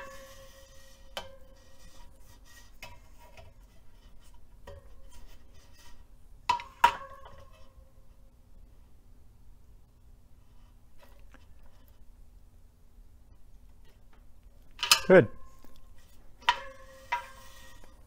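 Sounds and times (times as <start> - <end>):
ringing spokes: 0.0 - 8.2, 13.8 - 18.0.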